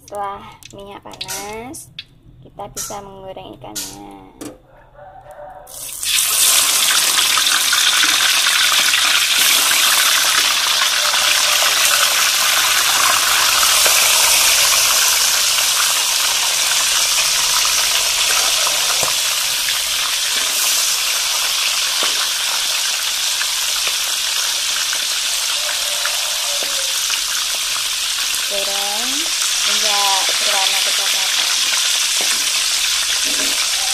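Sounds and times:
fish sizzling in hot oil: 5.7s - 33.9s.

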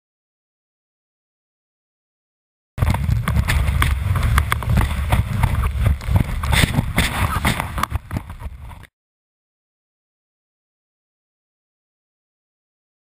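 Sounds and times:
snowboard scraping on snow: 2.8s - 8.9s
wind rumbling on microphone: 2.8s - 8.9s.

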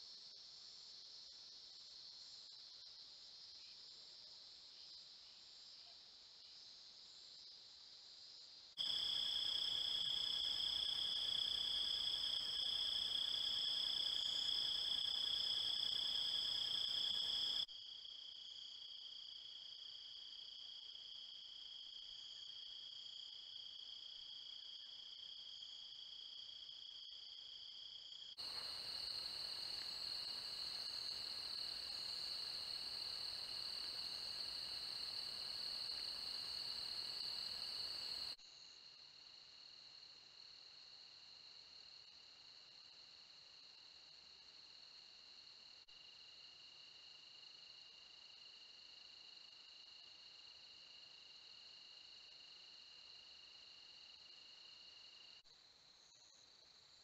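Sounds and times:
crickets and insects trilling: 28.4s - 38.4s.

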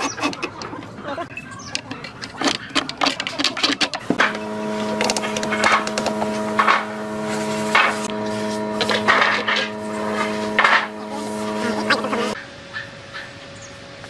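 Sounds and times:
wood scraping and rubbing: 2.0s - 12.4s
steady electrical hum: 3.9s - 14.0s.

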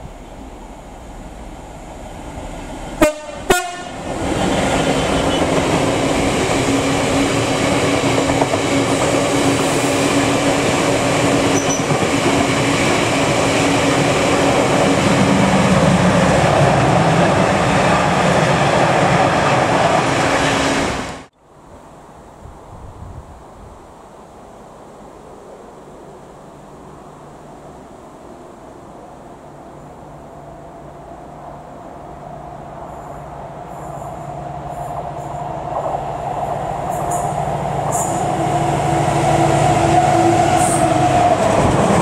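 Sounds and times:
train wheels rumbling on rail: 0.0s - 21.3s, 25.2s - 42.0s
diesel locomotive horn blasts: 3.0s - 5.6s, 37.9s - 41.4s.

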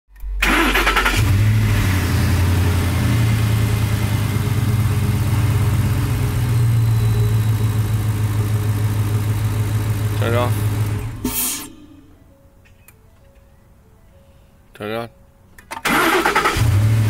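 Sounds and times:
low engine hum: 1.2s - 11.3s.

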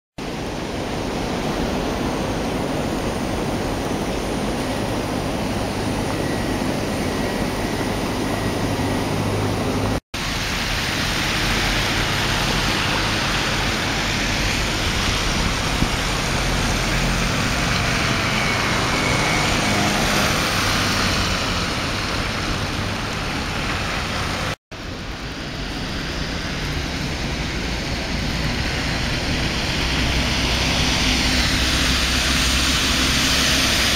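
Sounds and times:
city traffic: 0.2s - 33.9s.

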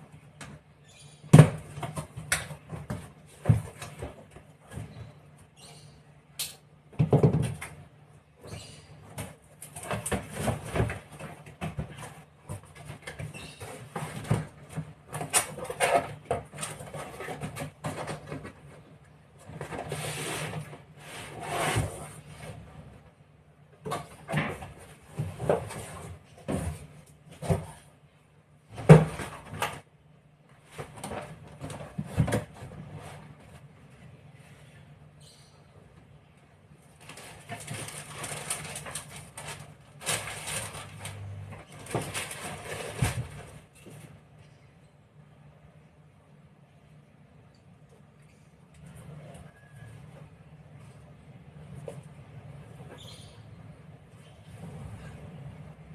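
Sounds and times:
cardboard scraping and rustling: 9.2s - 22.9s, 23.9s - 27.9s, 37.0s - 44.1s.

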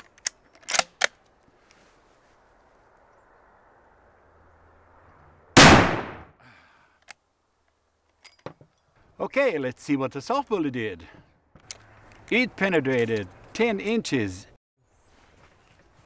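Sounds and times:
rifle bolt clicks: 0.0s - 1.3s
loud rifle shot: 5.6s - 6.4s.

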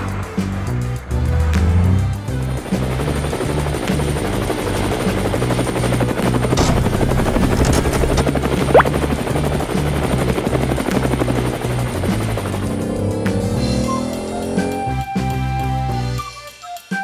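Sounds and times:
cartoon helicopter rotor chopping: 1.8s - 15.1s
short rising whistle: 13.6s - 17.0s.

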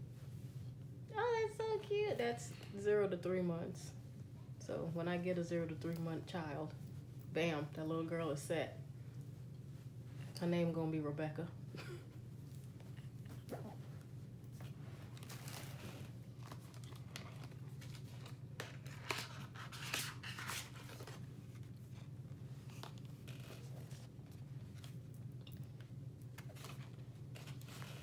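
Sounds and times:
low steady hum: 0.0s - 28.0s
packaging rustling and crinkling: 15.0s - 21.8s.

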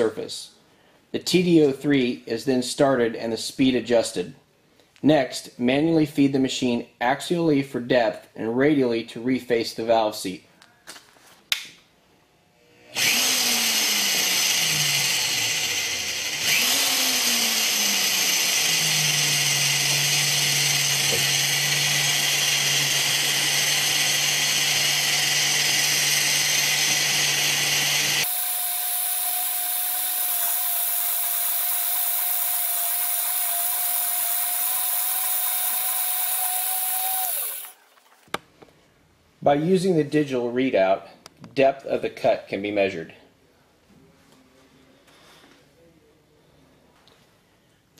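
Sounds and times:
lathe motor drone: 12.6s - 37.8s
tool bit cutting metal: 12.9s - 37.8s.

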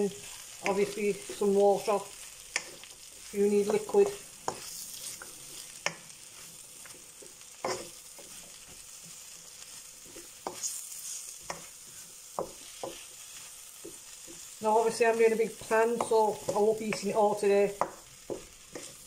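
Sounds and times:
vegetables and beef sizzling in pan: 0.0s - 19.0s
utensil scraping against pan: 3.6s - 6.5s, 7.6s - 8.6s, 10.0s - 13.1s, 18.3s - 19.0s.

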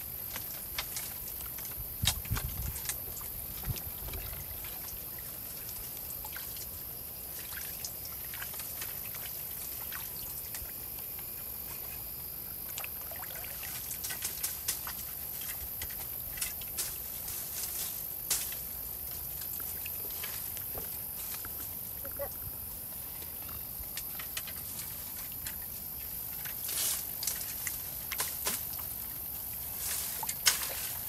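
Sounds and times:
water trickling: 1.0s - 11.6s, 12.2s - 22.6s.

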